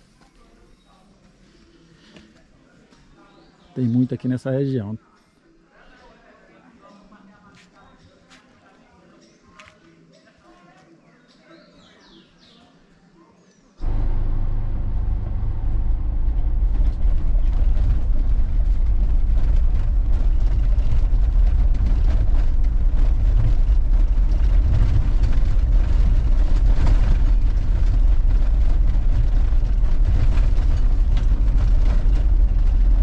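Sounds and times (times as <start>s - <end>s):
knocks and rattles: 13.8s - 33.0s
vehicle engine and road rumble: 13.8s - 33.0s.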